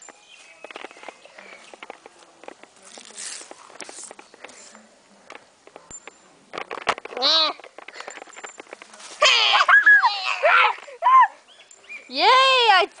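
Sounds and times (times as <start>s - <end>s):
leaves rustling: 0.0s - 5.6s, 6.2s - 13.0s
clicks and scrapes on pavement: 0.0s - 9.3s.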